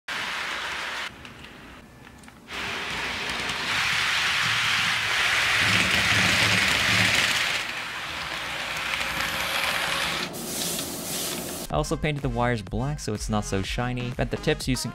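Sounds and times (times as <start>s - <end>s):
model train wheels rattling on rails: 2.5s - 11.6s
locomotive motor running: 2.5s - 11.7s.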